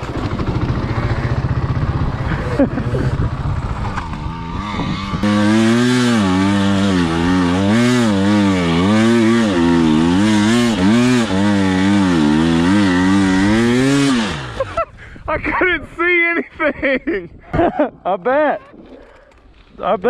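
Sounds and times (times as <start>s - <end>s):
dirt bike engine revving: 0.0s - 14.8s.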